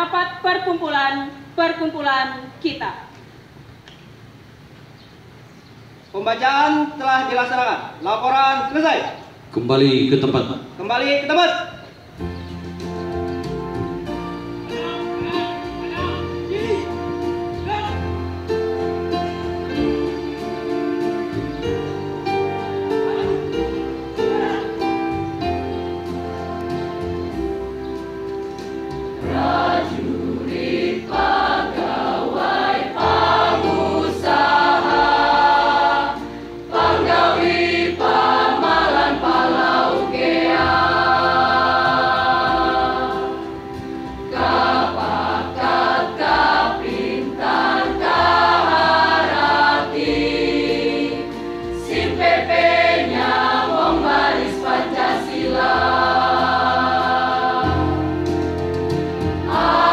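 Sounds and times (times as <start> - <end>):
choir singing held chords: 13.0 - 59.9.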